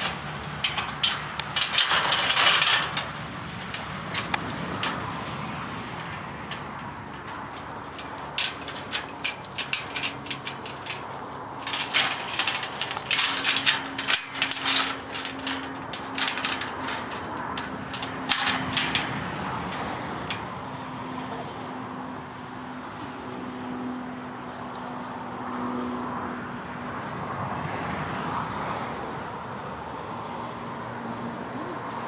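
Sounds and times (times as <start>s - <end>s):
gate chain and latch rattling: 0.0s - 20.6s.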